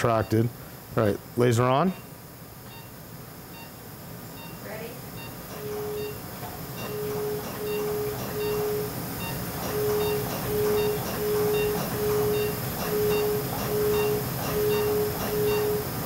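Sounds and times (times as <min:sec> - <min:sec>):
laser low beeps: 0:04.4 - 0:16.0.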